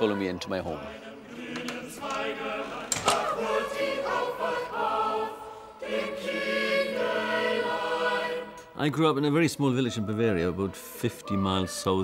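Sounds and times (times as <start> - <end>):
choir singing held notes: 0.0 - 12.0.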